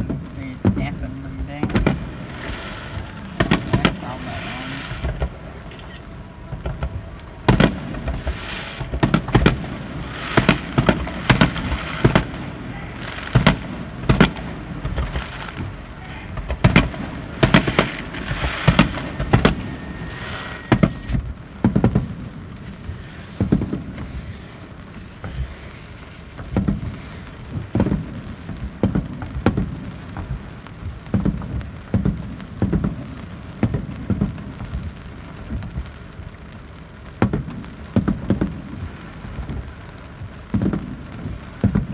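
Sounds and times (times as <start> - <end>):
firework shells bursting: 0.0 - 41.9.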